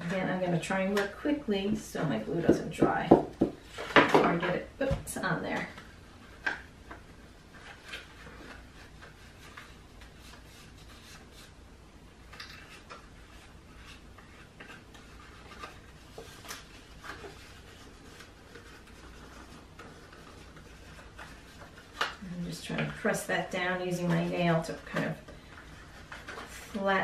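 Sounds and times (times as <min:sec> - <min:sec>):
paper rustling and rubbing: 0:05.2 - 0:11.6, 0:12.2 - 0:27.0.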